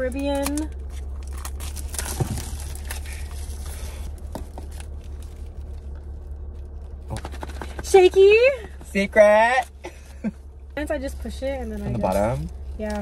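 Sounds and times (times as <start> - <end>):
steady low hum: 0.0 - 13.0
foil wrapper crinkling and tearing: 0.4 - 7.1.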